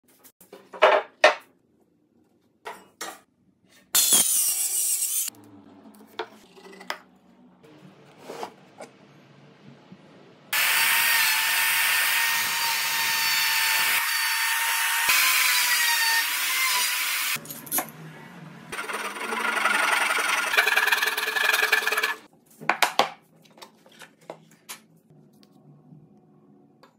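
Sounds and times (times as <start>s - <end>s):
router cutting wood: 10.6s - 17.4s, 18.8s - 22.2s.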